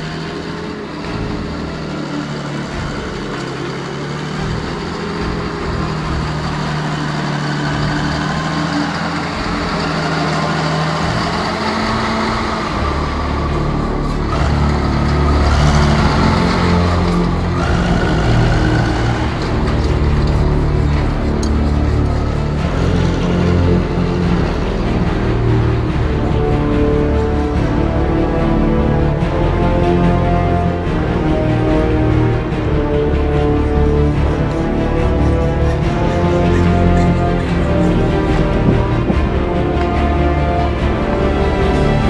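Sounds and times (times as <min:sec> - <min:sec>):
diesel engine running: 0:00.0 - 0:42.0.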